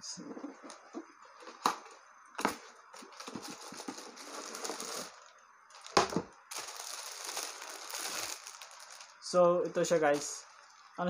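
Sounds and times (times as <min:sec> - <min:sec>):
cardboard scraping and rustling: 0:00.2 - 0:05.2
plastic wrapping crinkling: 0:02.4 - 0:11.0.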